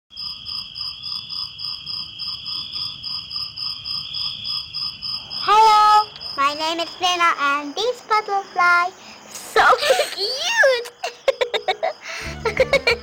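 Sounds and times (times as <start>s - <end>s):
high animal trill: 12.2s - 13.0s.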